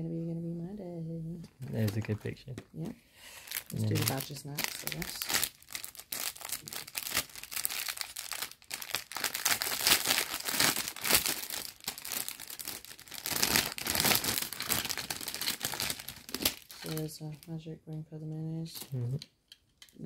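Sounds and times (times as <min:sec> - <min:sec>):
cellophane bags crinkling: 0:01.7 - 0:02.2, 0:03.4 - 0:17.5.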